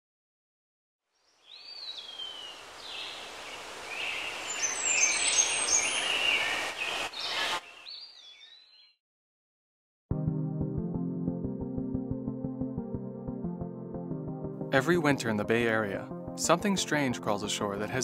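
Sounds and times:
bird calls whistling and chirping: 3.9s - 9.0s.

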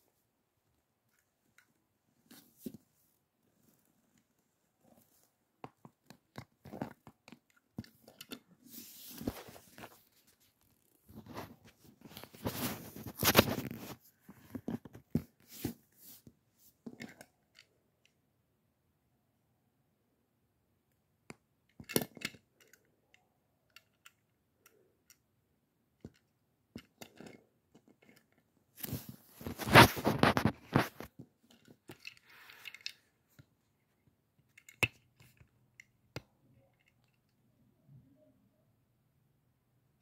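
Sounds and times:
handling clicks and taps: 5.6s - 8.5s, 29.5s - 37.4s
loud rustling and crinkling: 28.8s - 31.2s.

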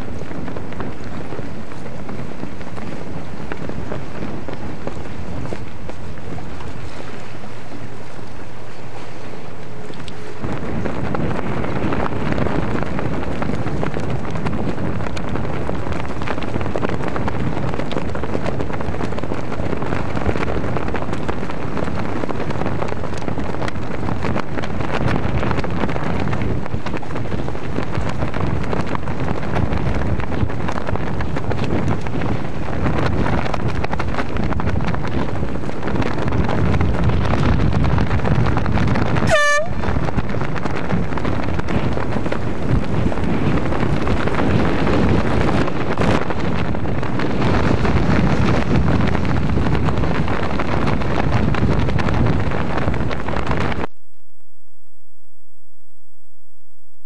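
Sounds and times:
wind on microphone: 0.0s - 54.3s
air horn toot: 39.2s - 39.9s.

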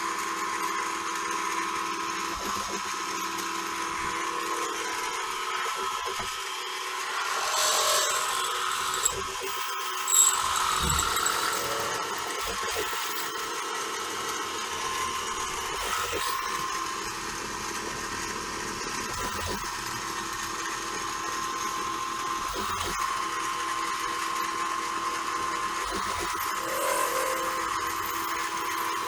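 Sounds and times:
mill spindle drilling whine: 0.0s - 29.0s.

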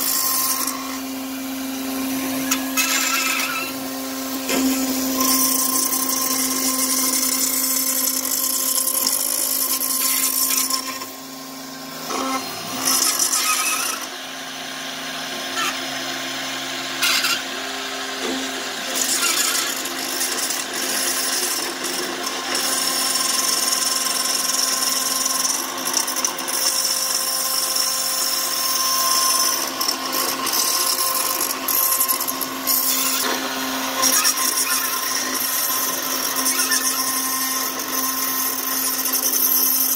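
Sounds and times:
router spindle hum and whine: 0.0s - 39.9s.

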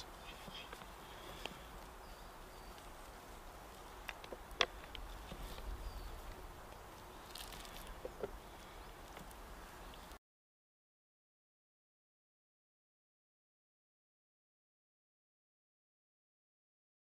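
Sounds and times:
faint steady hiss: 0.0s - 10.2s
low wind rumble: 0.0s - 10.2s.

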